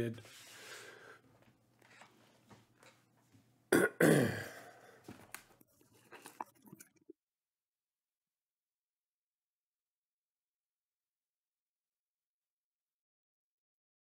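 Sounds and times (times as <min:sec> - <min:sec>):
man clearing his throat: 0:03.7 - 0:04.8.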